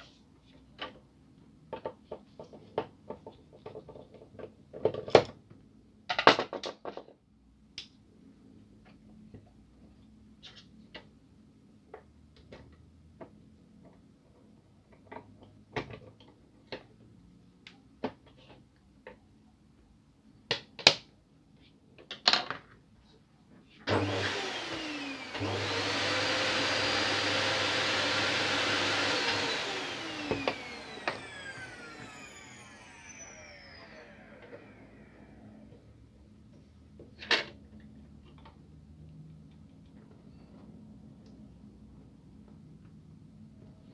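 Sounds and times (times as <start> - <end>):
vacuum cleaner motor: 23.9 - 35.8.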